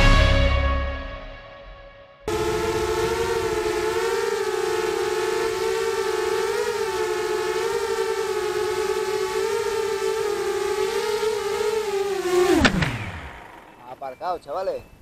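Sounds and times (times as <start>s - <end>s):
drone motors whining: 2.3s - 14.2s.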